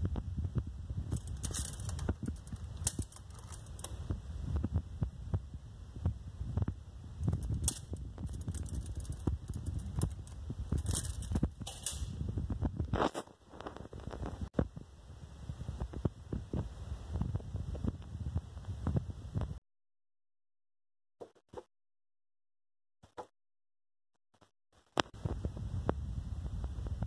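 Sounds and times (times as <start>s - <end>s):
microphone handling rumble: 0.0s - 19.6s, 25.0s - 27.0s.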